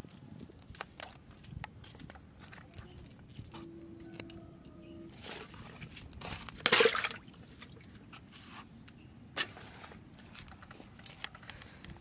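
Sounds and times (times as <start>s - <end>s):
fish splashing in bucket: 6.5s - 7.9s.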